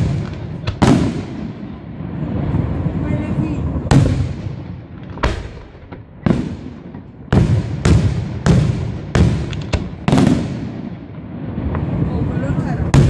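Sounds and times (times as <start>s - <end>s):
firework shells bursting: 3.8s - 11.0s.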